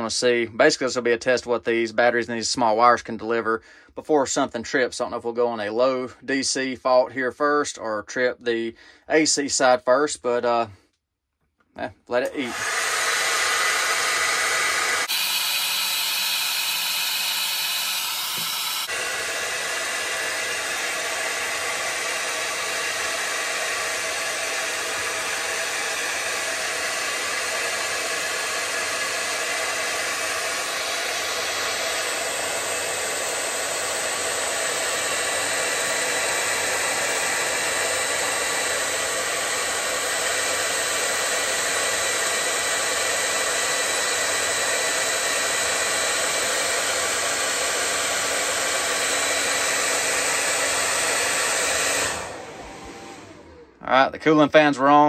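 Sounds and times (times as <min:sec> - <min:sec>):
hair dryer blowing: 0:12.1 - 0:55.0.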